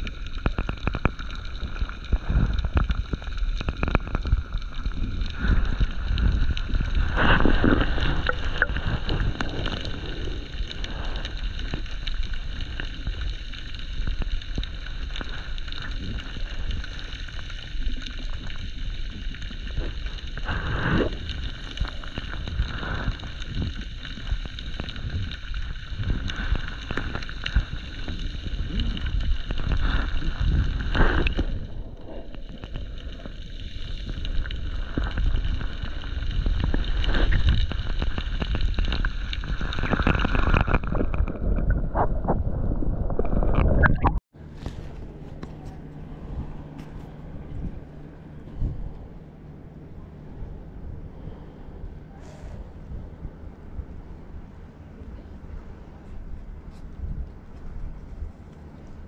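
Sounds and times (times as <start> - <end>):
water rushing: 0.0 - 18.9
muffled underwater rumble: 0.0 - 59.0
steady high whine: 43.6 - 59.0.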